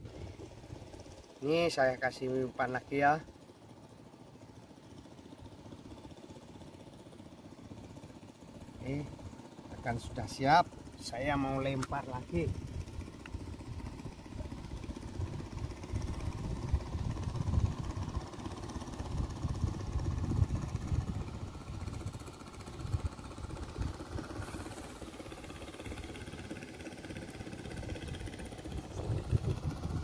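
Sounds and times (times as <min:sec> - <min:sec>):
wind buffeting microphone: 0:12.5 - 0:18.3, 0:19.0 - 0:22.2, 0:28.0 - 0:30.0.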